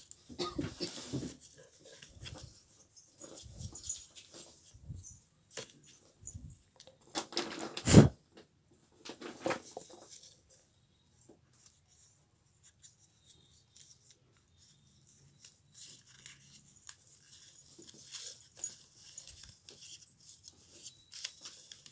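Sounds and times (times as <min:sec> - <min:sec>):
paper rustling and crinkling: 0:00.0 - 0:06.2, 0:09.0 - 0:10.5, 0:11.5 - 0:21.9
soft paper crackling: 0:11.3 - 0:21.9.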